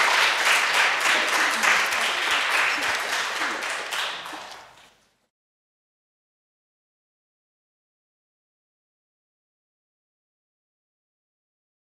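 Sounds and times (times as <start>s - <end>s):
audience applauding: 0.0s - 5.0s.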